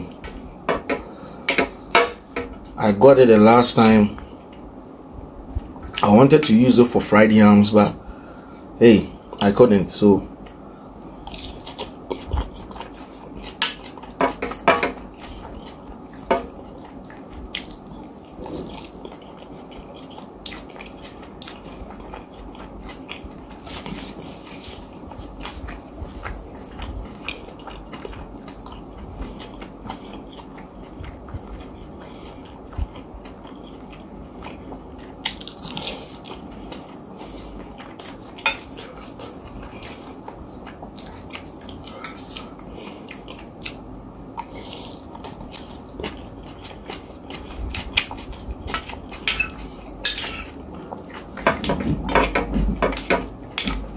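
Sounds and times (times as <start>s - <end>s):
man chewing food: 0.0s - 7.2s, 10.3s - 53.9s.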